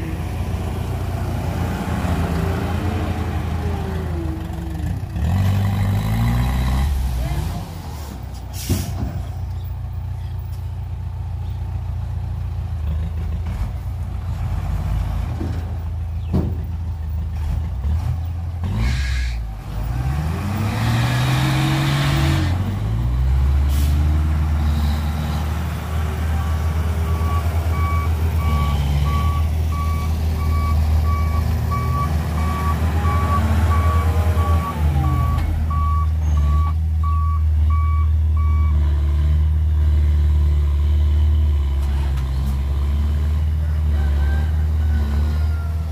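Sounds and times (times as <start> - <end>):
diesel truck engine revving: 0.0 - 10.0, 11.0 - 45.9
reversing alarm beeping: 26.4 - 38.8.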